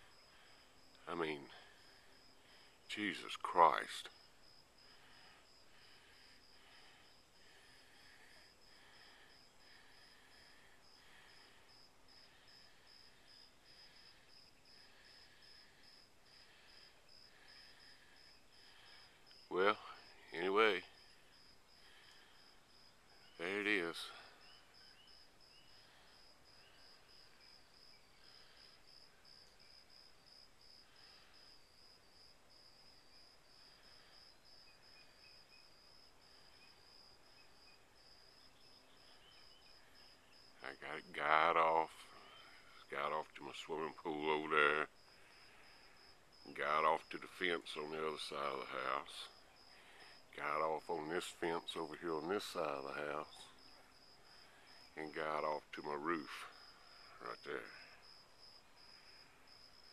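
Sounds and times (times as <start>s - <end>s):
insect buzzing: 0.0s - 41.2s, 44.3s - 46.5s
insect chirping: 0.0s - 59.9s.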